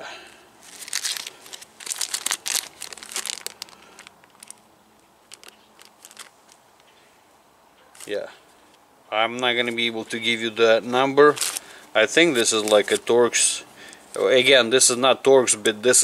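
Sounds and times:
plastic bag crinkling: 0.6s - 6.6s, 11.1s - 13.2s.

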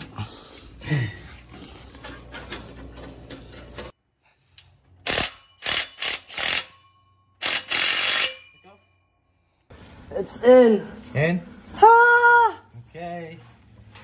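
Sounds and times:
metal pipe scraping and clanking: 1.5s - 4.7s.

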